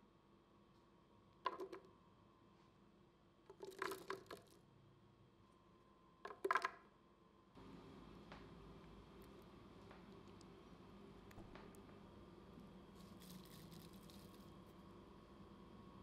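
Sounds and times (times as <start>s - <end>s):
pieces dropping into blender jar: 3.5s - 4.5s.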